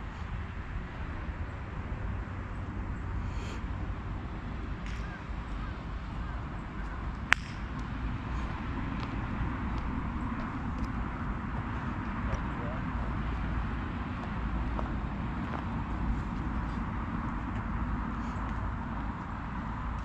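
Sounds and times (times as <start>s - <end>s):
golf club striking ball: 7.2s - 8.0s.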